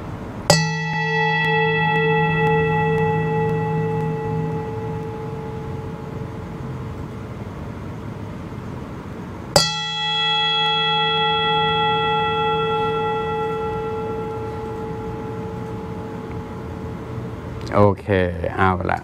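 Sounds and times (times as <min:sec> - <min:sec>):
singing bowl struck: 0:00.0 - 0:08.2, 0:09.5 - 0:17.7
singing bowl ringing: 0:00.0 - 0:08.3, 0:09.5 - 0:17.8.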